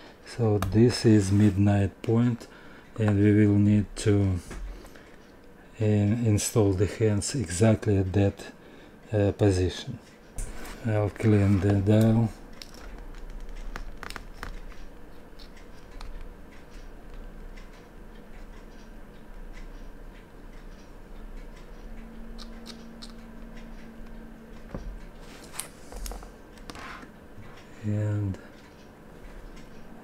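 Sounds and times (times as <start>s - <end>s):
low steady hum: 0.0s - 30.0s
fingers scratching and clicking: 11.2s - 16.3s, 22.2s - 23.5s.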